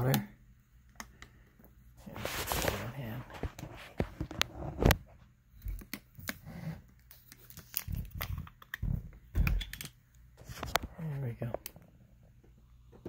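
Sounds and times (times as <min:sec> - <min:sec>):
plastic bottle crinkling: 0:07.1 - 0:10.9.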